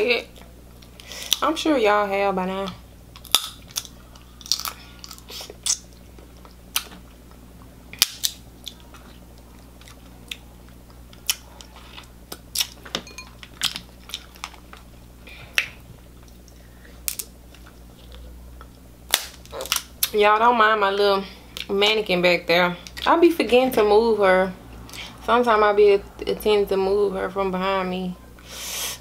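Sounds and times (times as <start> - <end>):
crab shells cracking: 3.1 - 5.9, 13.5 - 14.9, 15.6 - 17.8, 18.6 - 20.2.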